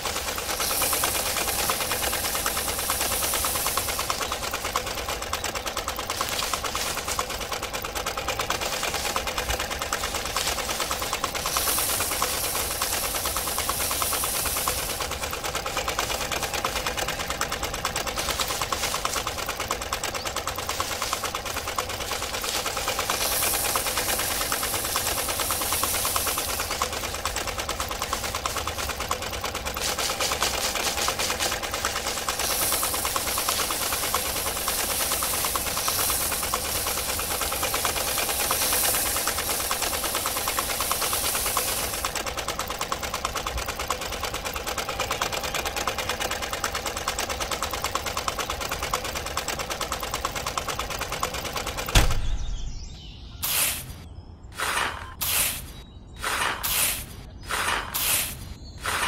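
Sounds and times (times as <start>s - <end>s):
motor stopping thump: 0.0s - 17.5s, 18.1s - 42.6s, 51.3s - 52.9s
rice stalks swishing: 0.0s - 42.4s
thresher motor rattling: 0.0s - 54.0s, 54.6s - 59.0s.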